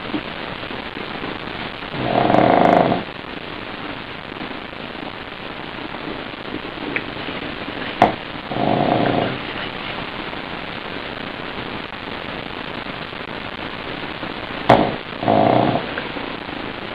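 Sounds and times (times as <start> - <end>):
steady hiss: 0.0 - 16.9
dog snoring: 1.9 - 3.1, 8.0 - 9.4, 14.7 - 16.0.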